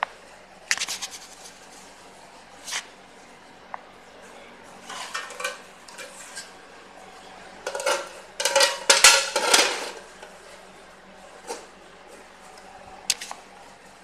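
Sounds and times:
metal cover scraping on metal: 7.7s - 10.0s.

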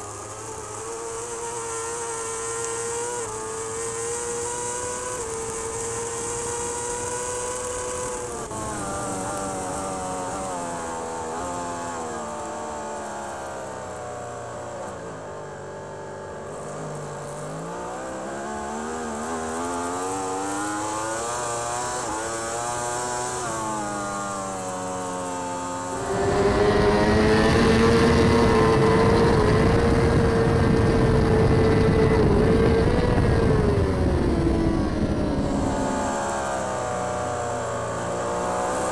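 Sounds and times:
motorcycle engine revving: 0.0s - 38.9s
wind noise: 25.9s - 36.6s.

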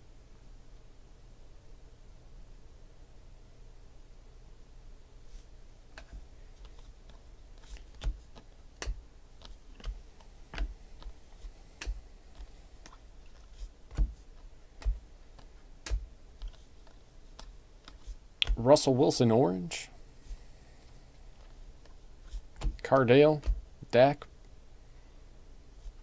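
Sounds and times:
cards flicking with light clicks: 5.9s - 18.6s.

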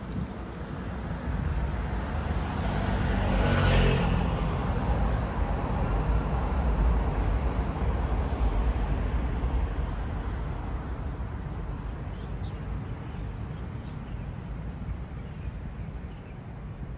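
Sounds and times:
passing vehicle rumble: 0.1s - 10.9s.

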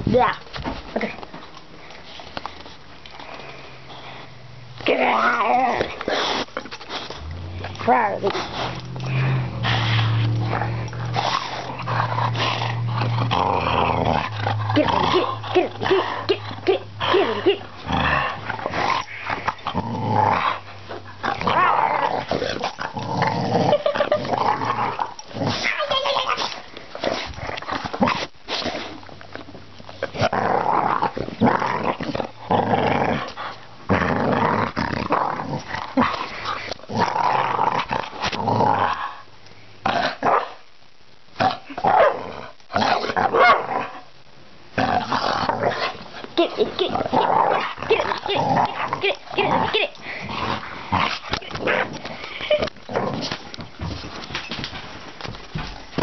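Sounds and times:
dog growling: 4.8s - 28.3s, 30.0s - 39.2s, 44.7s - 53.9s.

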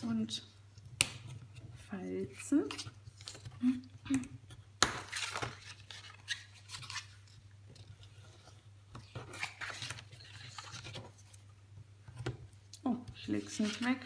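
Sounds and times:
stiff card rustling and scraping: 5.0s - 11.5s, 13.1s - 14.0s.

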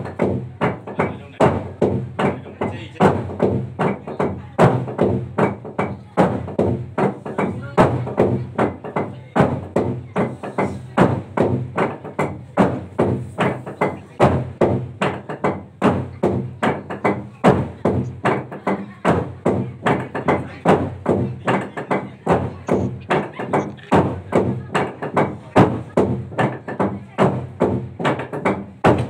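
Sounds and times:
log drum beaten with wooden beaters: 0.0s - 29.0s.

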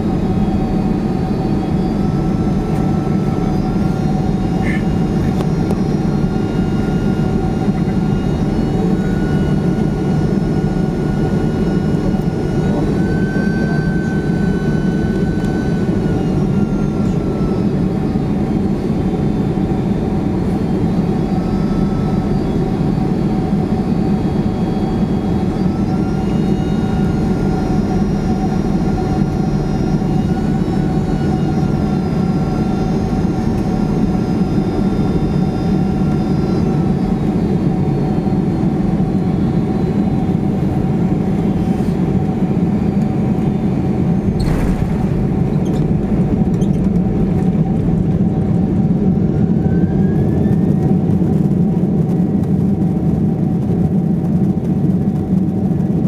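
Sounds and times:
thin engine whine: 0.0s - 53.8s
jet engine rumble: 0.0s - 56.0s.

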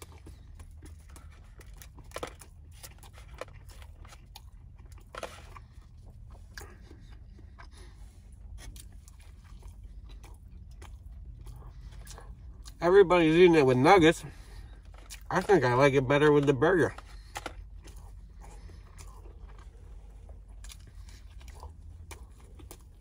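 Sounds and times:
low steady hum: 0.0s - 23.0s
person chewing food: 0.0s - 23.0s.

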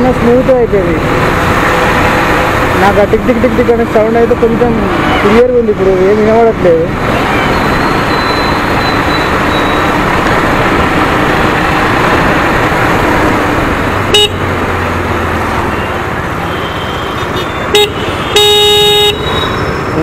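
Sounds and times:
motorcycle engine and wind: 0.0s - 18.1s
vehicle horn toot: 14.1s - 14.4s, 16.5s - 19.6s.

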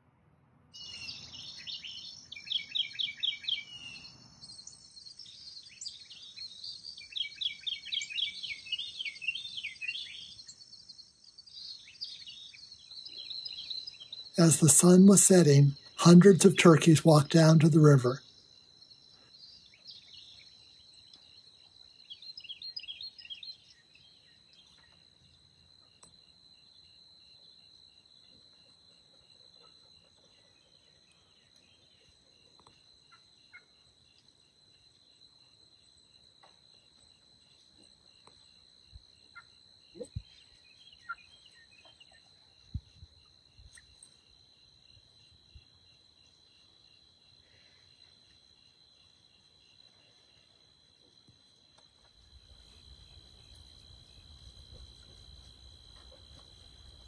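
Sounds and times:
crickets and insects trilling: 0.8s - 24.6s, 42.5s - 57.0s.

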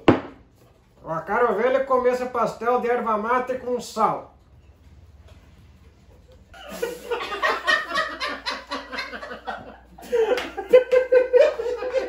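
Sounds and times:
men laughing: 6.1s - 12.0s.

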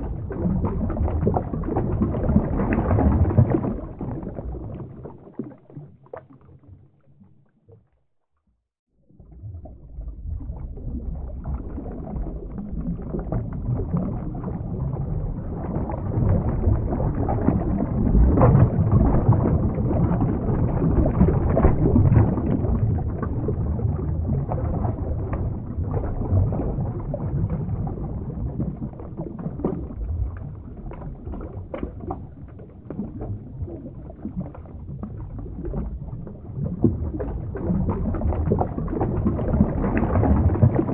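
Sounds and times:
underwater rushing water: 0.0s - 7.9s, 9.0s - 40.9s.

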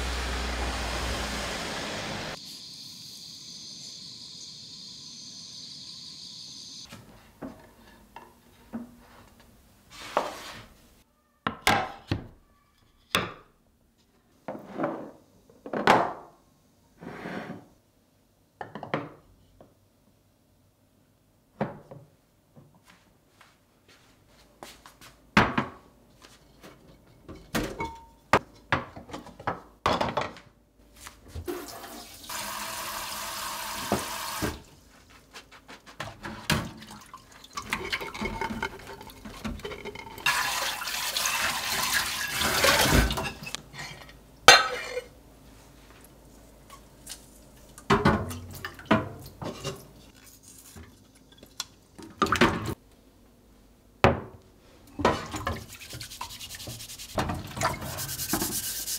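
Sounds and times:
glass containers clinking: 37.4s - 40.6s, 42.2s - 45.1s
tap water running into metal sink: 40.3s - 43.1s.

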